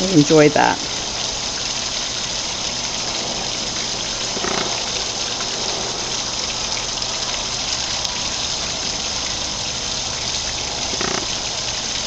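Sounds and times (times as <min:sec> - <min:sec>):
waterfall splashing into pond: 0:00.0 - 0:12.0.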